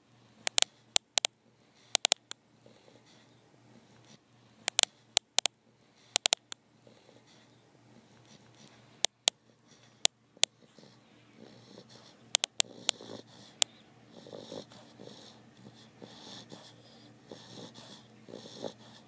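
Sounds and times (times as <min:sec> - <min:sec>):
sharp clicks: 0:00.4 - 0:02.4, 0:04.6 - 0:06.6, 0:09.0 - 0:09.4, 0:12.3 - 0:13.0
dog snoring and wheezing: 0:02.6 - 0:04.2, 0:06.8 - 0:08.8, 0:09.5 - 0:19.0.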